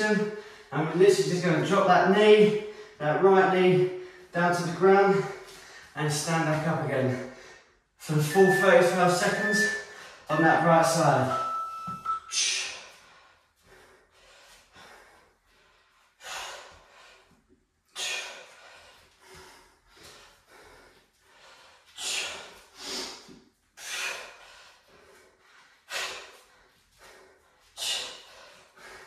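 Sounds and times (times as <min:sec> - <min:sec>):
man breathing hard: 0:00.0 - 0:00.7, 0:02.5 - 0:03.0, 0:05.0 - 0:06.0, 0:11.2 - 0:29.0.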